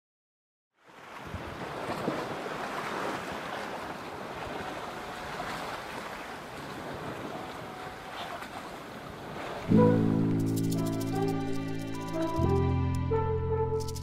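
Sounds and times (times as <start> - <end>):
waves washing past hull: 0.8 - 10.4.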